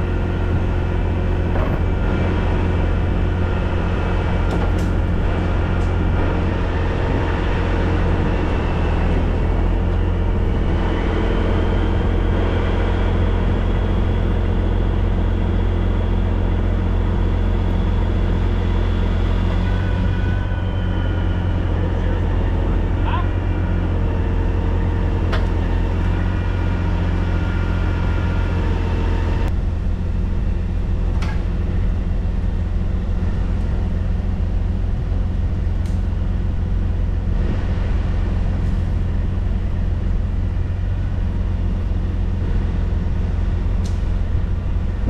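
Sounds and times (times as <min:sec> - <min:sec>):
heavy diesel engine running: 0:00.0 - 0:45.0.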